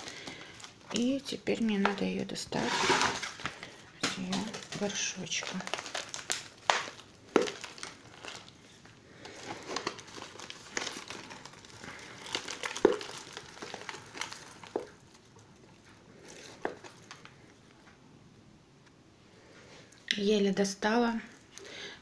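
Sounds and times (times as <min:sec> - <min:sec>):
plastic bottle crinkling: 0:00.0 - 0:17.6.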